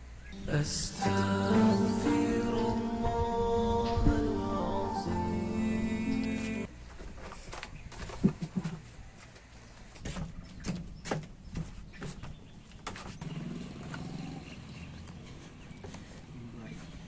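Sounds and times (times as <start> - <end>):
footsteps on wooden deck: 6.9 - 14.1.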